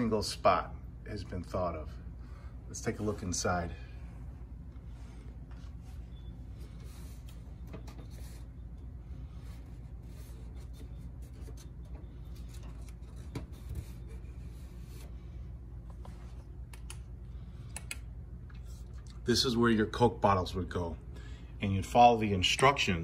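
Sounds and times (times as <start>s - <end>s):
steady low hum: 0.0s - 23.0s
handling noise with small clicks: 15.8s - 19.2s.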